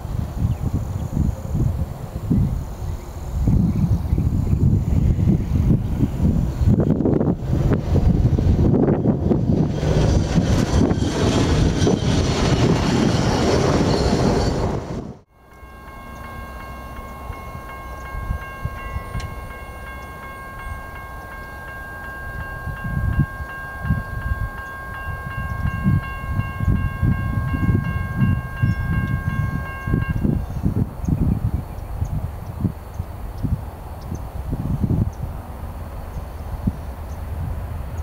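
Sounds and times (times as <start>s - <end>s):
loud rushing noise: 7.2s - 15.2s
railroad crossing bell ringing: 15.3s - 30.9s.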